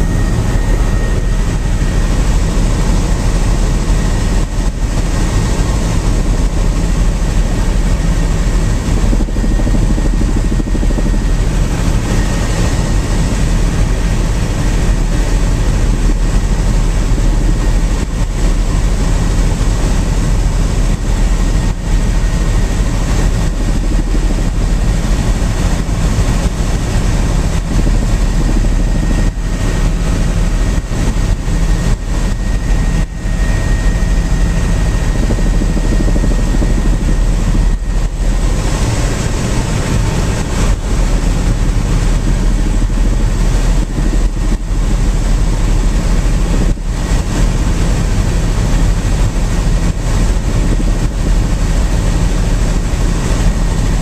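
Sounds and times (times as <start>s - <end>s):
faint high whine: 0.0s - 17.9s
helicopter rotor and engine drone: 0.0s - 54.0s.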